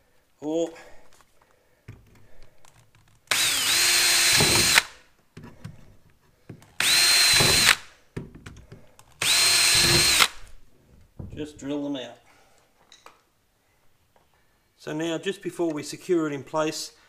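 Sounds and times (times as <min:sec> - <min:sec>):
cordless drill whine: 0:03.3 - 0:05.0, 0:06.8 - 0:07.9, 0:09.2 - 0:10.5.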